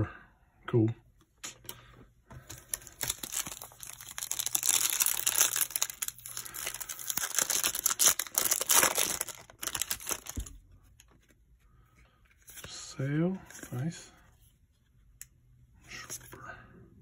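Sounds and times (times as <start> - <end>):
plastic wrapper tearing and crinkling: 2.5 - 10.5.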